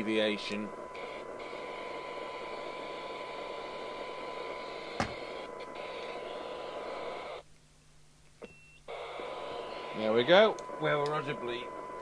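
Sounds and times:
radio hiss: 0.0 - 7.4, 8.9 - 12.0
faint steady tone: 8.4 - 12.0.

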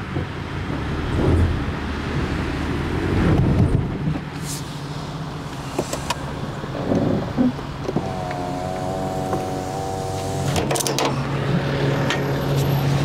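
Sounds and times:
vehicle engine running: 4.5 - 13.0.

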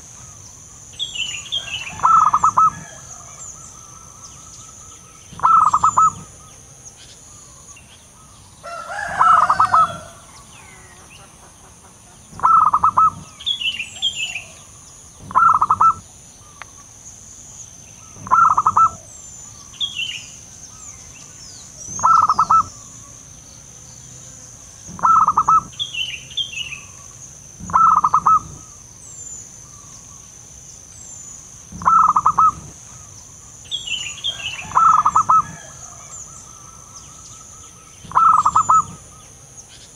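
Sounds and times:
small birds chirping faintly: 0.0 - 39.9
dove staccato cooing: 1.6 - 4.2, 5.3 - 6.4, 8.9 - 16.8, 18.1 - 19.1, 21.8 - 23.2, 24.8 - 25.8, 26.9 - 28.8, 31.7 - 33.2, 34.3 - 37.0, 38.0 - 39.1.

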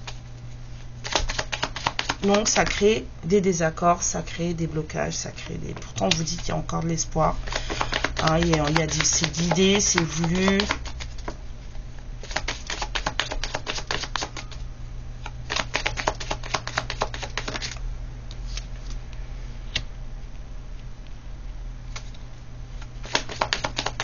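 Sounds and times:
steady low hum: 0.0 - 24.0
cards being shuffled: 1.0 - 2.8, 5.4 - 6.6, 7.4 - 11.4, 12.2 - 14.6, 15.4 - 17.8, 22.8 - 24.0.

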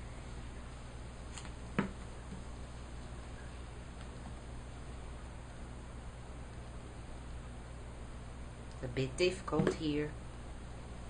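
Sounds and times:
steady low hum: 0.0 - 11.0
sharp tap on desk: 1.8 - 2.0.

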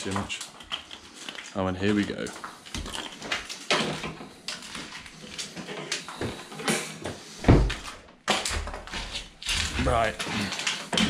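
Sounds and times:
cable scraping in wall: 0.0 - 11.0.

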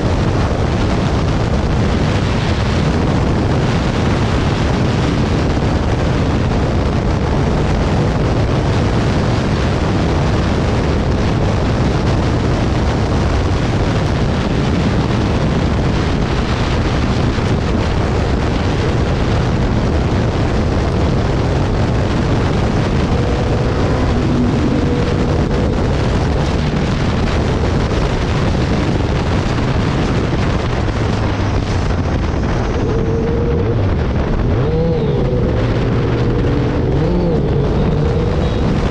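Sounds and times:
motorcycle engine running: 0.0 - 38.9
road noise: 0.0 - 38.9
wind roaring over microphone: 0.0 - 38.9.

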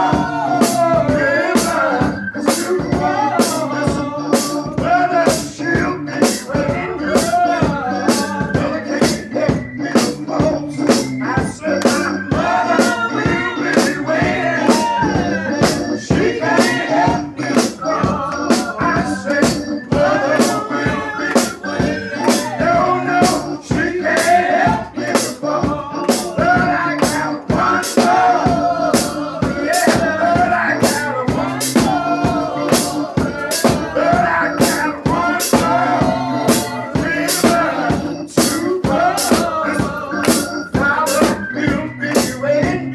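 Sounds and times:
man singing into a microphone: 0.0 - 16.2, 37.1 - 42.9
voices singing gospel: 0.0 - 42.9
steady beat of sharp hits: 15.6 - 41.4.

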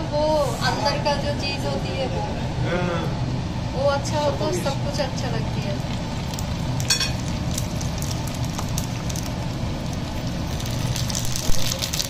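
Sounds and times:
steady low hum: 0.0 - 12.0
hot oil sizzling: 3.8 - 12.0.

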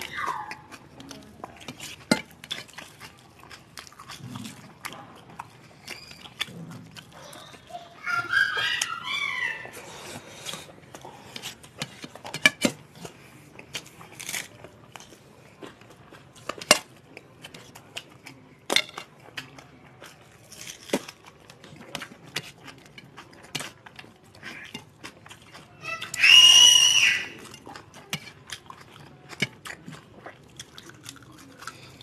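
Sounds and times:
people chewing and lip smacking: 0.0 - 32.0.

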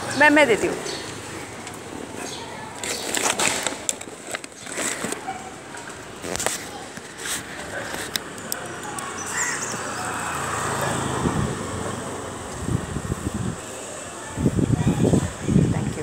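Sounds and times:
faint voices: 0.0 - 16.0
rustling of bag handling: 2.8 - 8.2.

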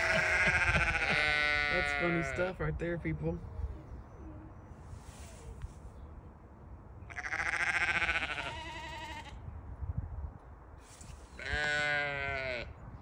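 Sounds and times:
sheep bleating: 0.0 - 2.5, 7.1 - 9.4, 11.4 - 12.7.

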